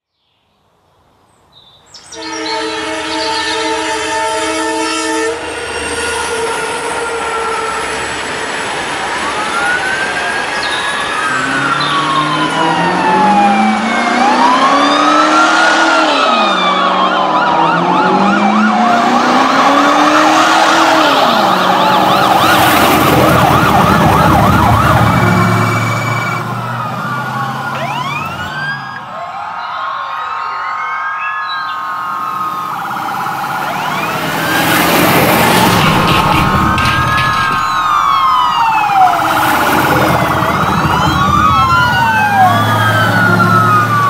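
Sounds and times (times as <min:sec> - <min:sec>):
police sirens wailing: 0:02.2 - 0:44.0
fast yelping siren warble: 0:09.4 - 0:29.0, 0:30.2 - 0:44.0
low rising and falling tone: 0:11.4 - 0:29.0, 0:32.0 - 0:44.0.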